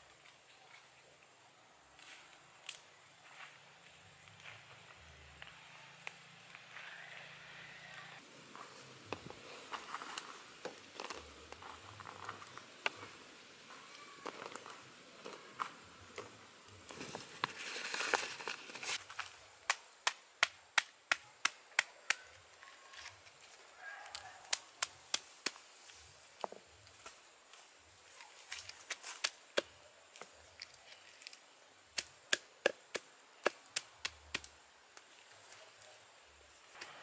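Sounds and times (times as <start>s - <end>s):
leaf crinkling: 1.9s - 20.2s, 20.8s - 37.0s.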